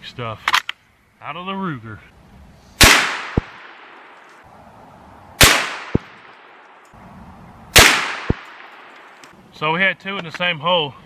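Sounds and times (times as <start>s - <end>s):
rifle shots: 2.8s - 4.2s, 5.4s - 6.8s, 7.7s - 9.1s.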